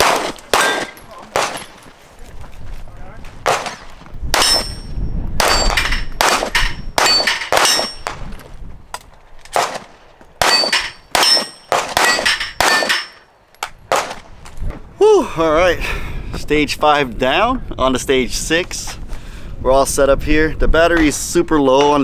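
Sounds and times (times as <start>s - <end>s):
bullets clanging on steel targets: 0.0s - 1.9s, 3.6s - 8.2s, 10.4s - 13.8s.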